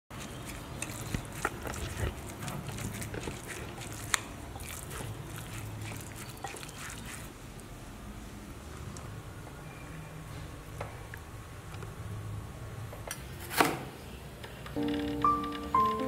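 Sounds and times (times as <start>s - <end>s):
wet sticky squelching: 0.1s - 7.3s.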